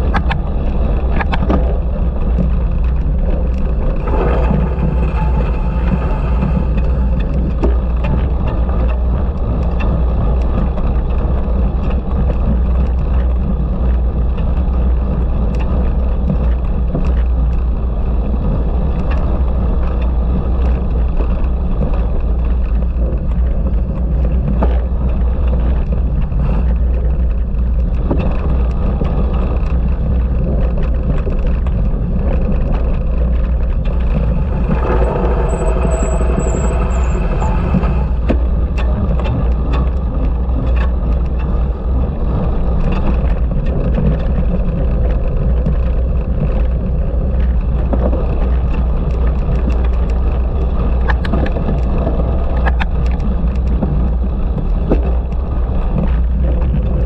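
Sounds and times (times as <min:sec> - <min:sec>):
wind rushing over microphone: 0:00.0 - 0:57.0
bicycle knocks and rattles: 0:37.4 - 0:57.0.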